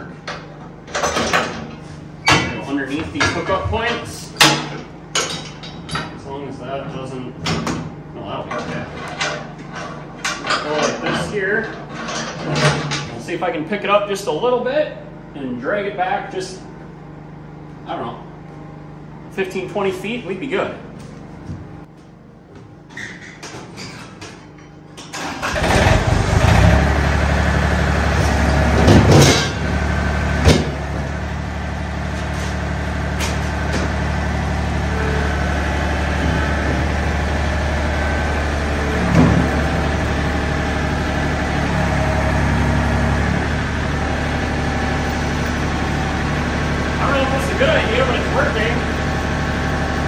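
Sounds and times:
tractor engine starting and running: 0:25.0 - 0:50.0.

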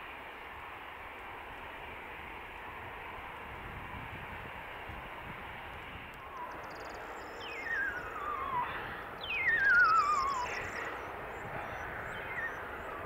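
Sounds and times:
distant jet engines: 0:00.0 - 0:13.0
falling warbling whistles: 0:06.2 - 0:13.0.

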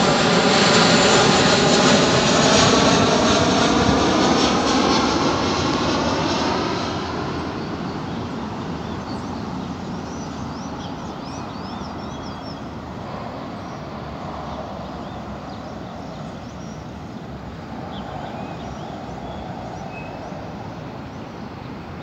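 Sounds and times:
small birds chirping: 0:06.8 - 0:22.0.

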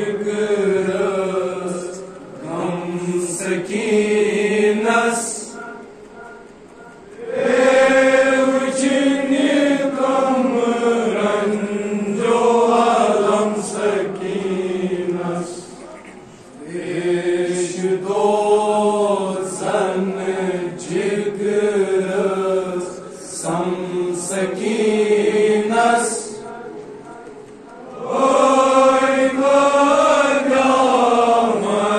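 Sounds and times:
voices chanting a slow melody: 0:00.0 - 0:31.9.

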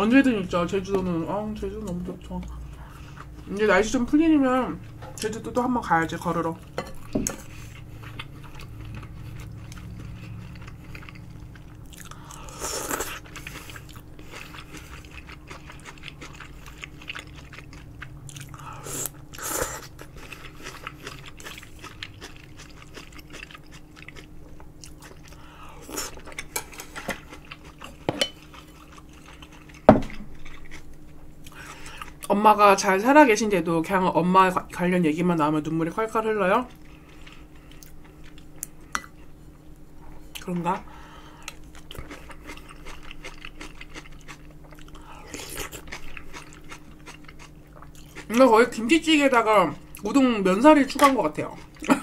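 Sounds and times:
quiet chewing: 0:01.8 - 0:03.5, 0:06.9 - 0:32.3, 0:36.6 - 0:48.4.

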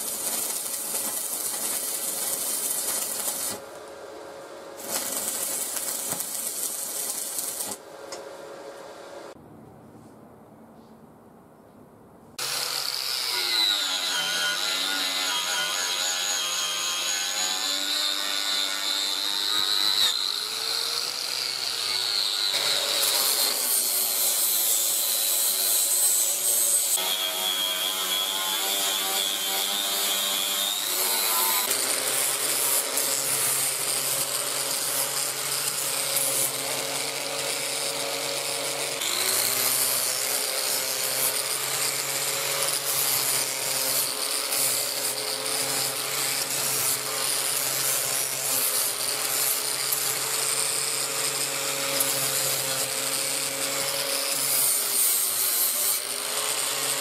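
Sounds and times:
angle grinder grinding steel: 0:00.0 - 0:03.6, 0:04.8 - 0:07.8, 0:12.4 - 0:57.0.

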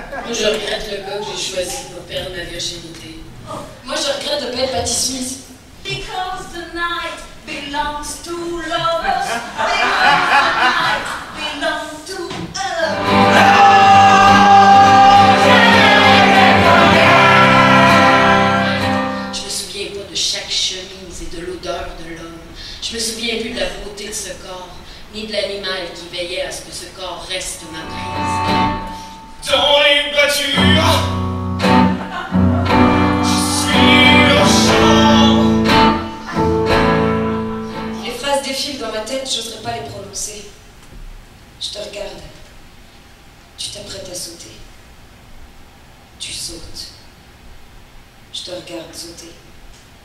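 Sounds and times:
group singing: 0:12.9 - 0:19.2, 0:31.9 - 0:36.6
acoustic guitar strumming: 0:12.9 - 0:19.5, 0:27.8 - 0:38.2.

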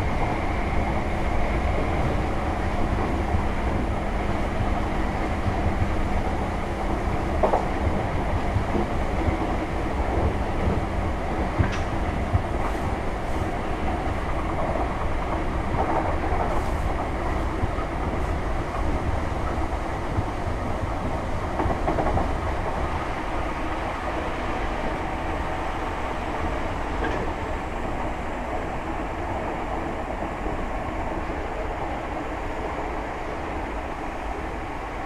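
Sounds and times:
train wheels rumbling on rail: 0:00.0 - 0:35.0.

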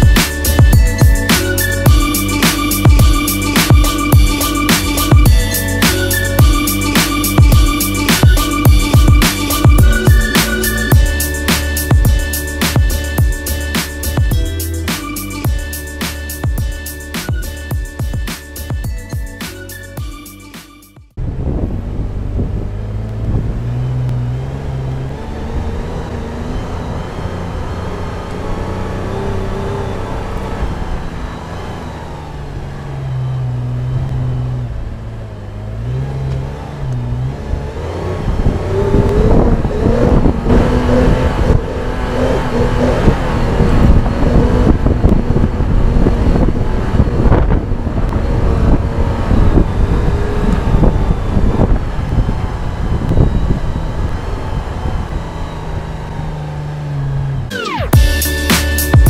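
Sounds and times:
car engine climbing hill: 0:00.0 - 0:59.0
wind buffeting microphone: 0:21.2 - 0:23.8, 0:37.5 - 0:56.3.

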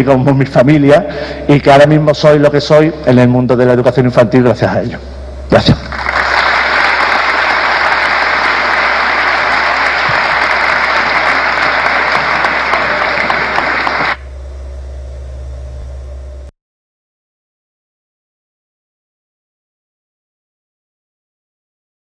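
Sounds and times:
low hum: 0:00.0 - 0:16.5
audience applauding: 0:05.7 - 0:14.2.

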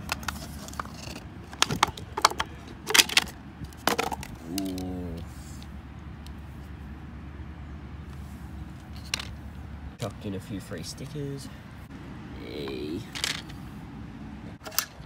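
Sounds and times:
clicks and knocks of wheels: 0:00.0 - 0:06.4, 0:08.1 - 0:10.1, 0:12.6 - 0:13.6.

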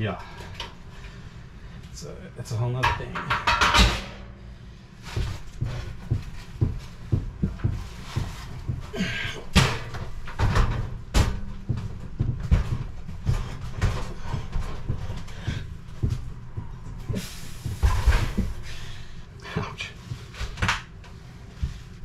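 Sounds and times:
metal stove knocking and clunking: 0:02.8 - 0:04.3.

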